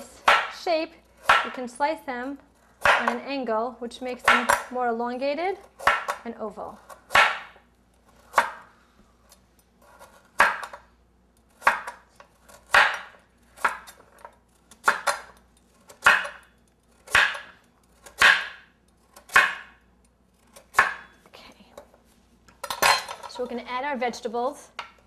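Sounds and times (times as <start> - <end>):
knife cutting carrot on board: 11.5 - 19.7.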